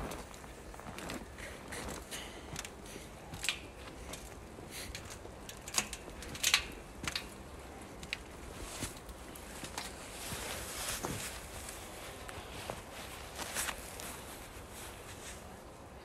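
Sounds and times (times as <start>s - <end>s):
footsteps crunching on snow: 0.0s - 4.7s, 8.0s - 15.5s.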